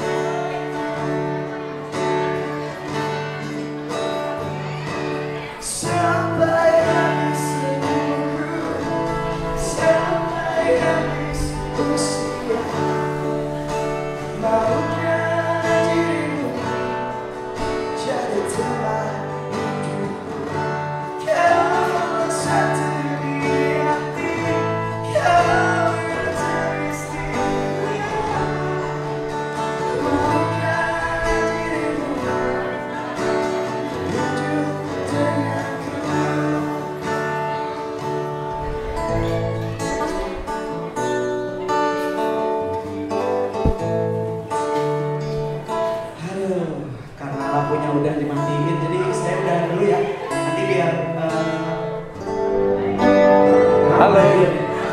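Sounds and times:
acoustic guitar: 0:00.0 - 0:54.9
man singing: 0:04.6 - 0:37.8, 0:45.7 - 0:54.9.

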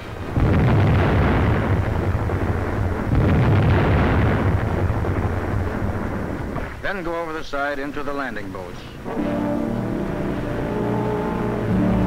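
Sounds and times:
naval gunfire blast and rumble: 0:00.0 - 0:07.8.

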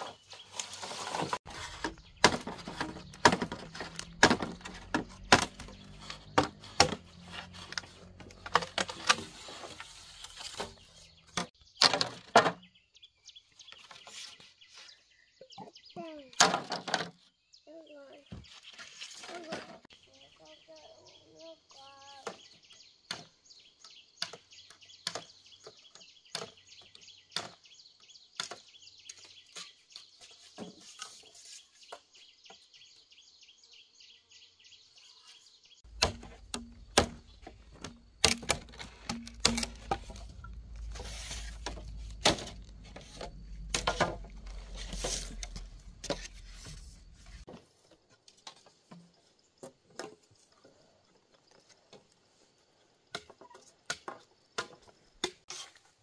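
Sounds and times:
machete chopping bamboo: 0:01.8 - 0:07.2, 0:35.9 - 0:42.8.

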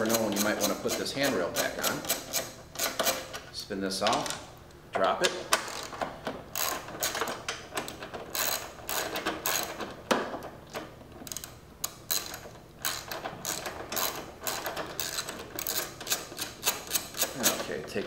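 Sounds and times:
hand ratchet clicking: 0:00.0 - 0:03.4, 0:05.5 - 0:09.9, 0:11.2 - 0:17.6.

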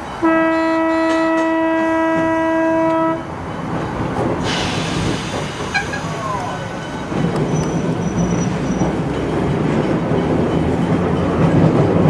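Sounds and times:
tram horn steady note: 0:00.0 - 0:03.4.

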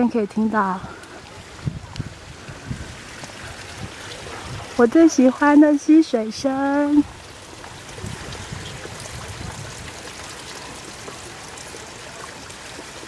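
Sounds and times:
stream water rushing: 0:00.0 - 0:13.0.

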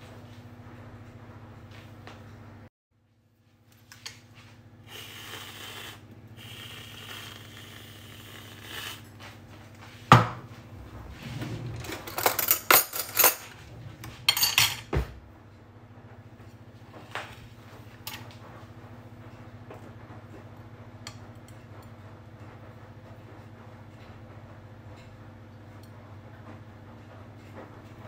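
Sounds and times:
steady low hum: 0:04.6 - 0:24.6
aerosol whipped cream hissing: 0:04.8 - 0:09.1.

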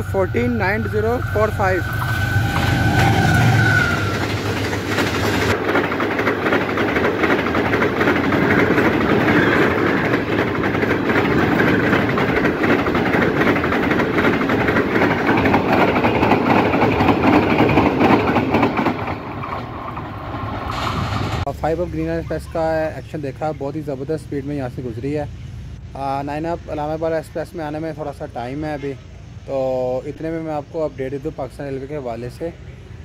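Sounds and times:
wheels clattering over rail joints: 0:00.0 - 0:24.4
train coaches rumbling: 0:00.0 - 0:33.0.

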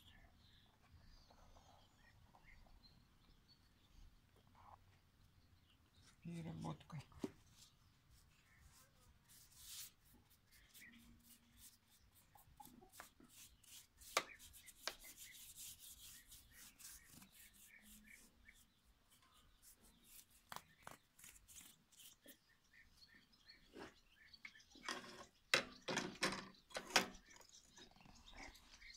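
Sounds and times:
brush rubbing on steel: 0:08.1 - 0:22.4.

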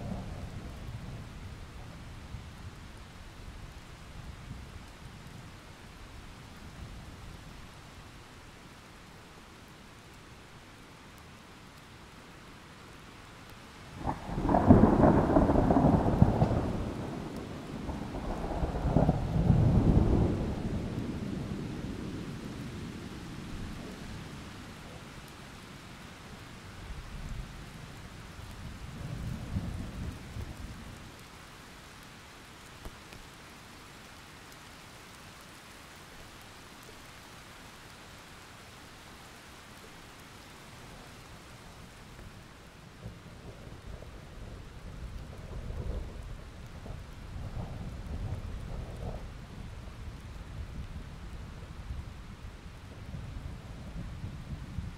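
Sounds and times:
steady rain hiss: 0:00.0 - 0:54.9
thunder rolling: 0:14.0 - 0:21.2.

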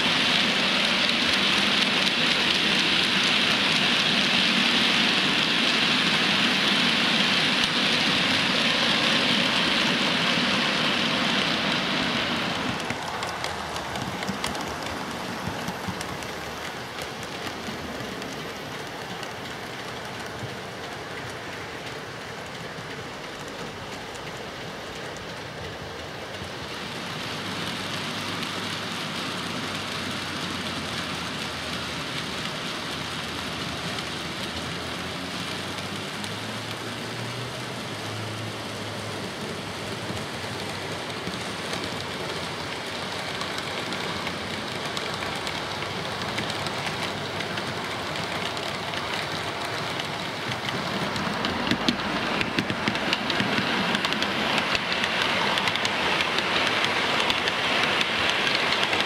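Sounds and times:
model train wheels on rail: 0:00.0 - 0:59.0
sharp clicking: 0:40.1 - 0:59.0.

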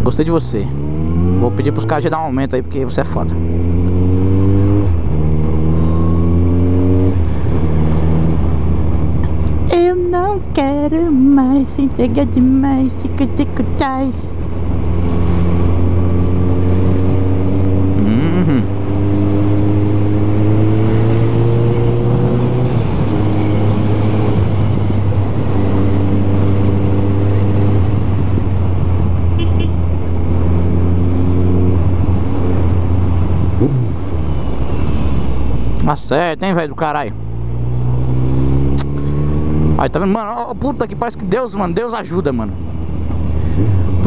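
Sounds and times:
wind and road noise: 0:00.0 - 0:44.0
motorcycle engine running: 0:10.6 - 0:21.8.

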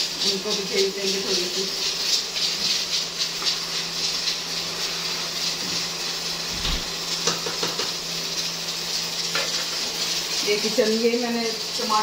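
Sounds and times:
slices deep-frying in oil: 0:00.0 - 0:12.0.

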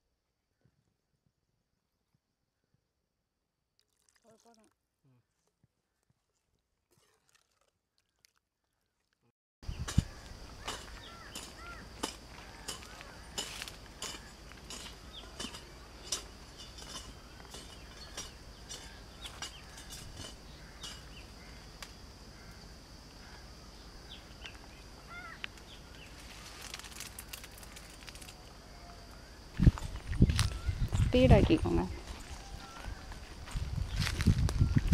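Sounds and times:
birds chirping: 0:09.6 - 0:22.7, 0:23.3 - 0:26.6, 0:28.5 - 0:34.9.

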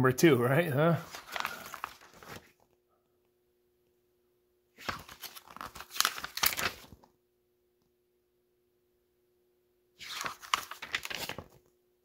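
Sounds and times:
paper pages rustling: 0:01.0 - 0:02.7, 0:04.8 - 0:07.1, 0:10.0 - 0:11.7.

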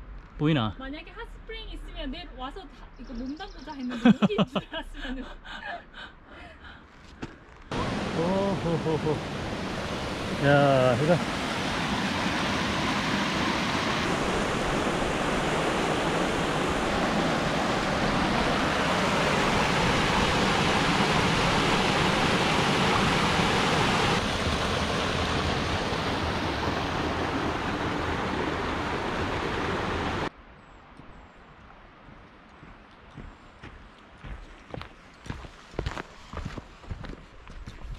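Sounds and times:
creek rushing over rocks: 0:07.7 - 0:30.3.

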